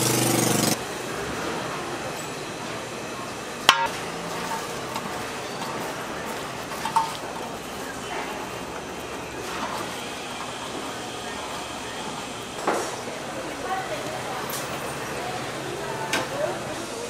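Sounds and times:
steady frying hiss: 0.0 - 17.0
spatulas scraping an iron pan: 4.2 - 7.6.

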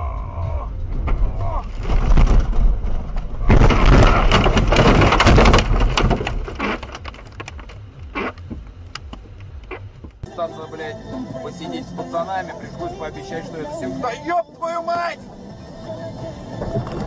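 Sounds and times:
knocks and rattles: 0.7 - 10.2.

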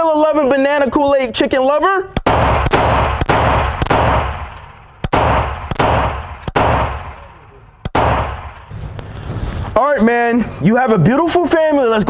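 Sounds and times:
handgun shots with echo: 2.2 - 8.7.

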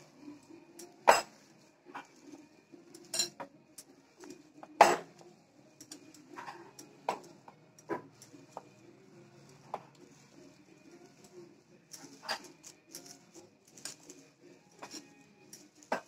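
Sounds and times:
hand squeezing food: 3.9 - 16.0.

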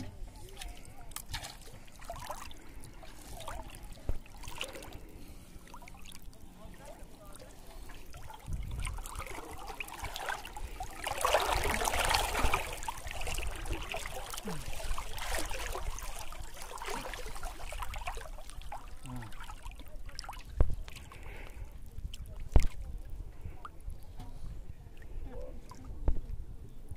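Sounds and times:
hand sweeping through river water: 7.7 - 19.6.

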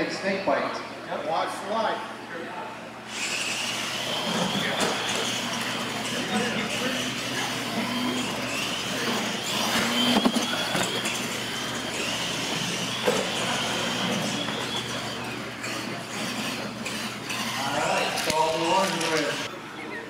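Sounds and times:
high whine of electric motors: 0.0 - 20.0.

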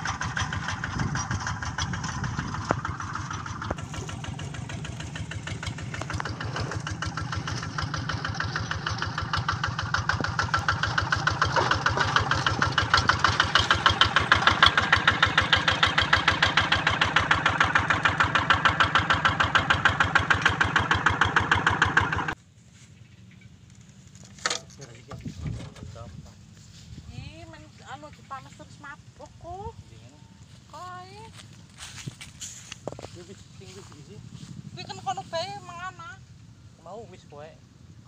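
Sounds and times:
diesel engine pulsing: 0.0 - 24.1, 24.9 - 38.0.

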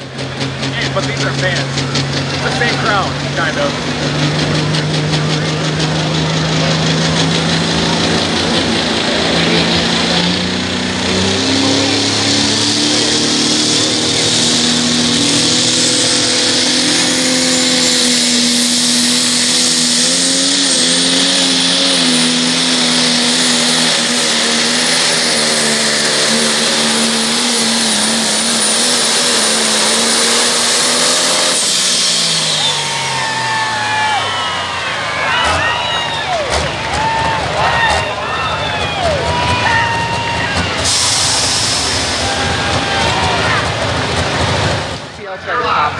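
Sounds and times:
diesel engine at full power: 0.0 - 45.9.

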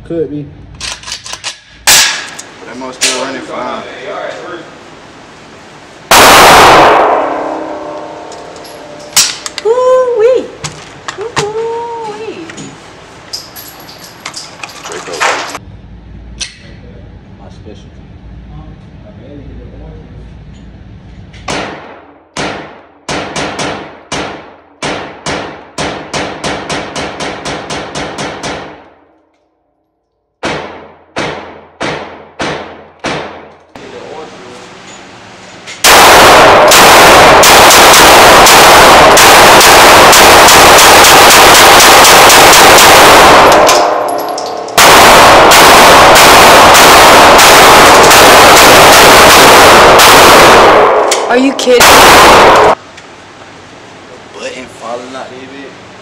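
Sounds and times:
rapid pistol shots echoing: 35.9 - 44.2, 44.8 - 52.8.

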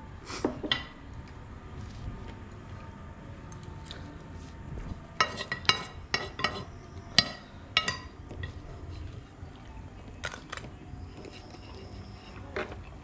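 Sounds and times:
metal utensils clinking on metal: 5.2 - 8.7.

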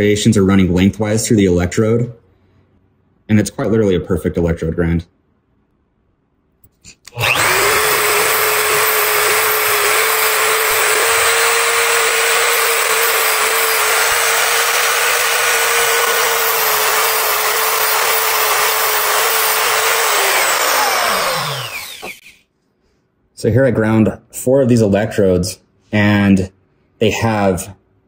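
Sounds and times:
grinder motor whining: 7.1 - 22.4
electrode grinding against wheel: 7.2 - 22.3.

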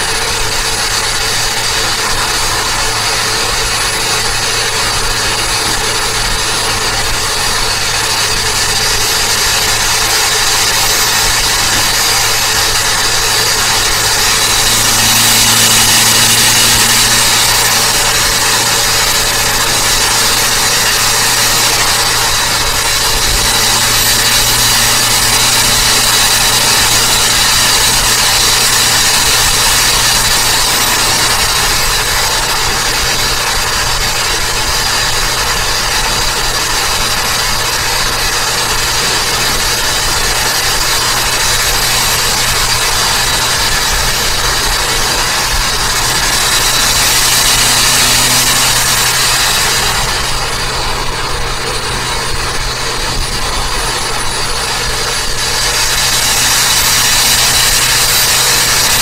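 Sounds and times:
car engine and tyre noise: 0.0 - 59.0.

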